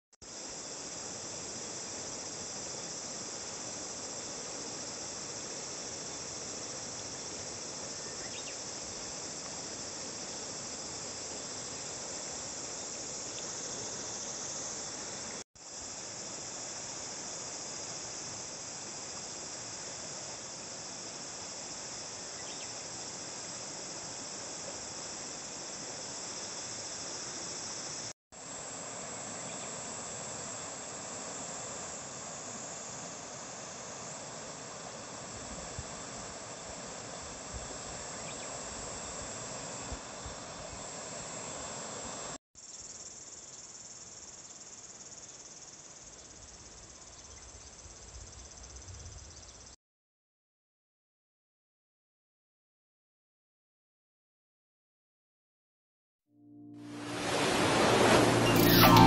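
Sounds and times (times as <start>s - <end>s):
insects chirring: 0.3s - 49.7s
river rushing: 56.8s - 59.0s.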